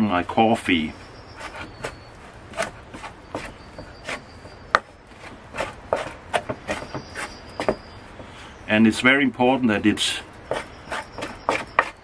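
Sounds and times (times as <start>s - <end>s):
wooden spoon scraping a bowl: 1.3s - 8.0s, 10.5s - 12.0s.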